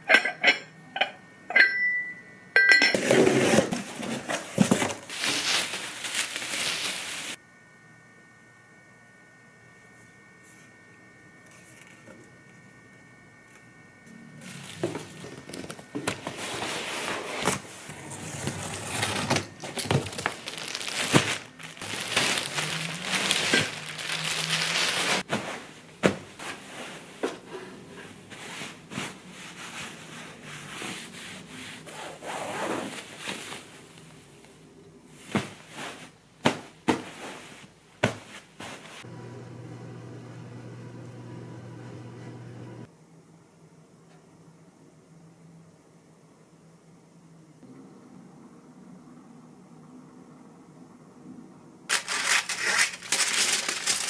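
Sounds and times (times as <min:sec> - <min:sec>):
plastic and cardboard crinkling: 0:03.4 - 0:07.4, 0:14.5 - 0:25.5, 0:51.9 - 0:54.0
steady low hum: 0:03.6 - 0:38.0.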